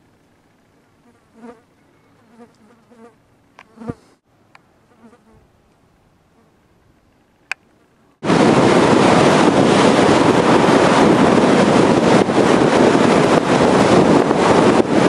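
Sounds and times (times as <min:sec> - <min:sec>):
flying insect buzzing: 0:00.9 - 0:04.2, 0:04.8 - 0:05.5.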